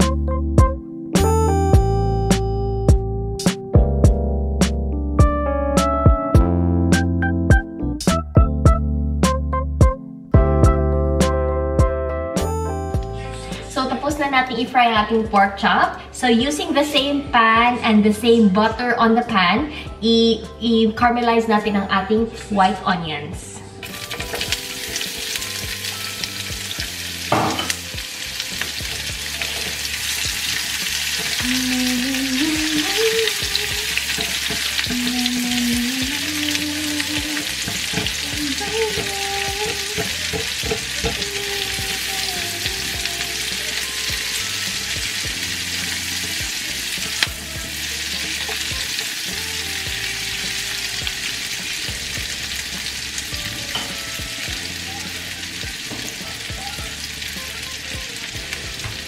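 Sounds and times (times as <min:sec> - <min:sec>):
onions sizzling in a pan: 0:23.8 - 0:59.0.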